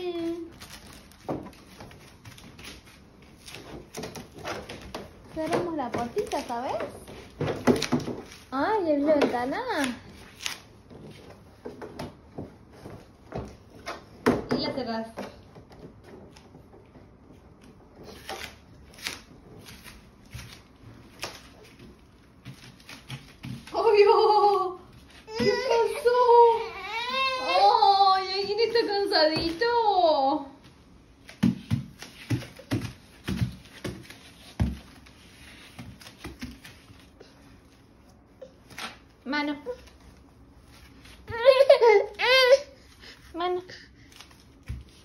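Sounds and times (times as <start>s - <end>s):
baby patting on foam mat: 31.2s - 37.2s.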